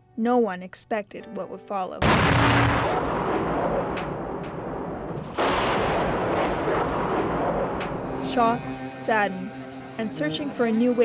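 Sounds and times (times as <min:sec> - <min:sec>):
gunfire cracks: 0:02.0 - 0:08.2
explosions: 0:02.0 - 0:08.6.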